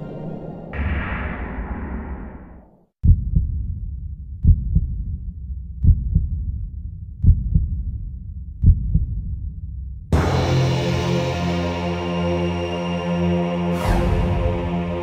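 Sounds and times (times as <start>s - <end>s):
heartbeat thumps: 3.0s - 9.6s
music: 3.0s - 15.0s.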